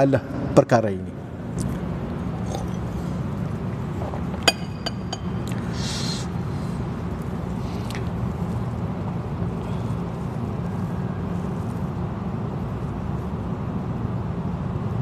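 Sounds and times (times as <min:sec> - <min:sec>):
steady low hum: 0:00.0 - 0:15.0
drinking glass clinking on table: 0:04.4 - 0:05.5.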